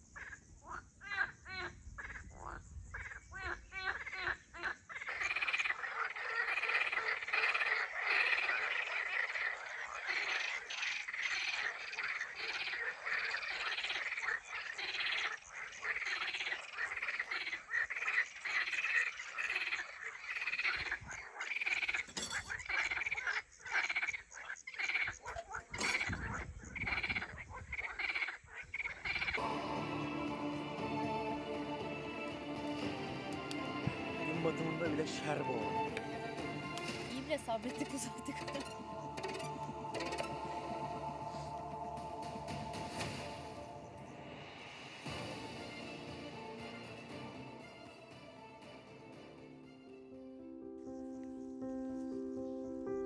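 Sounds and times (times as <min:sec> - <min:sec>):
frogs croaking: 0:00.0 - 0:44.8.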